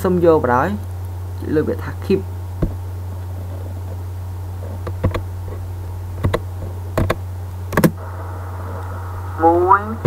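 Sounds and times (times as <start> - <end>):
steady low hum: 0.0 - 10.0
computer mouse clicks: 4.8 - 5.2, 6.2 - 6.4, 7.0 - 7.2.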